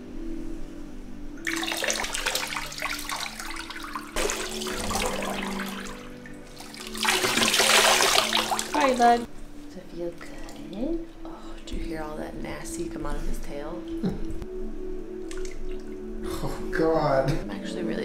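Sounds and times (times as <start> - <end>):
water pouring into bathwater: 1.4 - 9.3
water splashing: 1.4 - 9.3.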